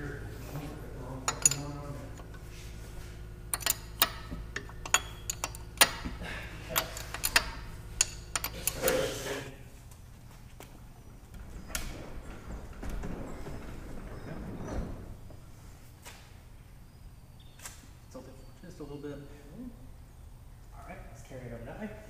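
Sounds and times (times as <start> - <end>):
low steady hum: 0.0 - 22.0
metallic clicks of hand tools: 3.6 - 6.1.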